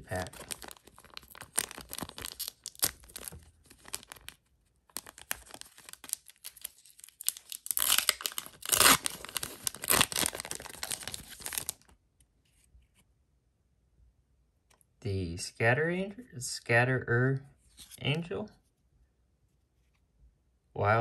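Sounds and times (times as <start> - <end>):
foil wrapper crinkling and tearing: 0.0 - 11.9.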